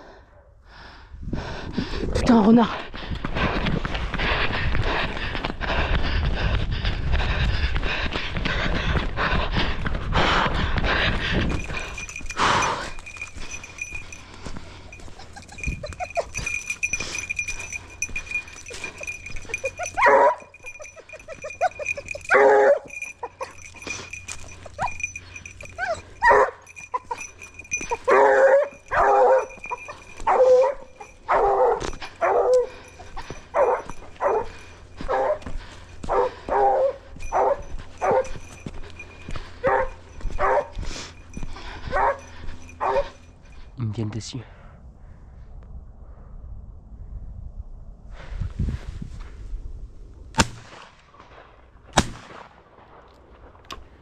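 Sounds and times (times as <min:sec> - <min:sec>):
dog barking: 0:19.0 - 0:23.6, 0:25.7 - 0:27.2, 0:27.8 - 0:35.5, 0:36.1 - 0:38.4, 0:39.6 - 0:40.8, 0:41.8 - 0:43.2.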